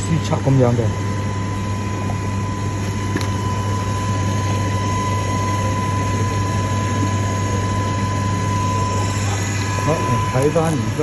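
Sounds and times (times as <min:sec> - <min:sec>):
mechanical hum with fan rush: 0:00.0 - 0:11.0
thin constant high tone: 0:03.4 - 0:11.0.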